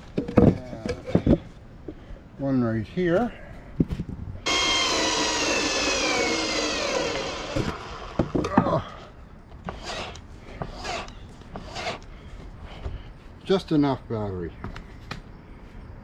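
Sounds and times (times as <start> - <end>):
cordless drill motor whine: 4.5 - 8.4.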